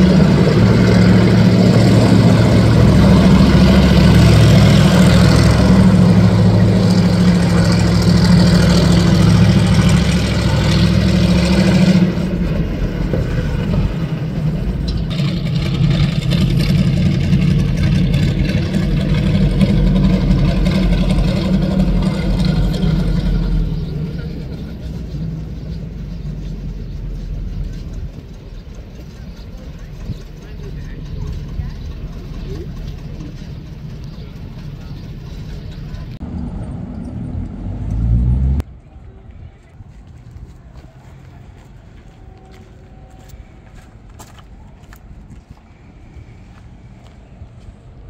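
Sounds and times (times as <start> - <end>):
car engine droning: 0.0 - 48.0.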